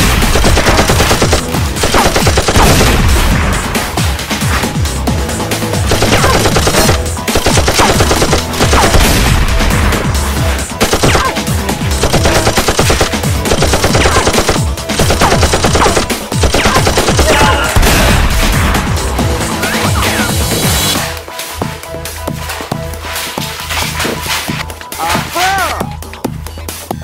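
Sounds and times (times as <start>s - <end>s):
automatic gunfire bursts: 0.0s - 3.1s, 5.9s - 9.2s, 12.0s - 17.6s
background music: 0.0s - 27.0s.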